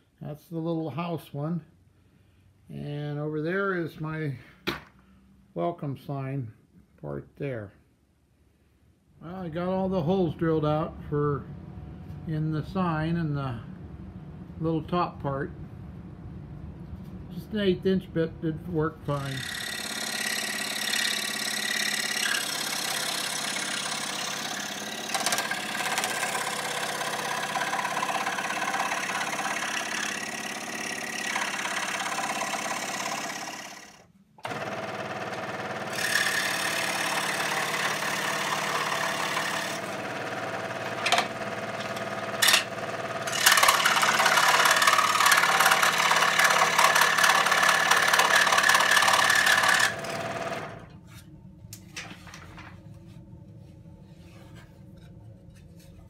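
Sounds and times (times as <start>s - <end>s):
scroll saw cutting wood: 19.1s - 51.2s.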